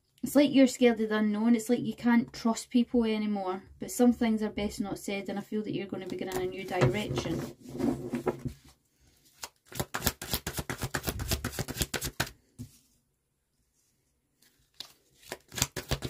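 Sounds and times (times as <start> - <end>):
cards being shuffled: 9.2 - 12.8, 14.4 - 16.0.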